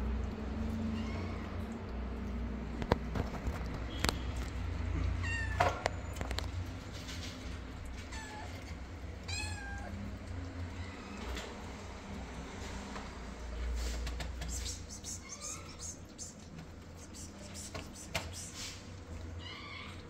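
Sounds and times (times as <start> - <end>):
cat meowing: 0.8 - 1.5, 5.2 - 5.8, 8.1 - 8.6, 9.2 - 10.0.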